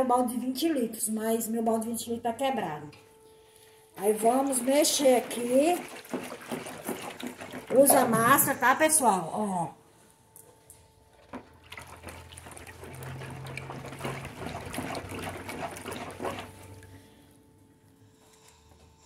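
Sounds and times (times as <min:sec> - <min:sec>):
liquid sloshing in a bucket: 0:04.0 - 0:09.1, 0:11.1 - 0:17.3.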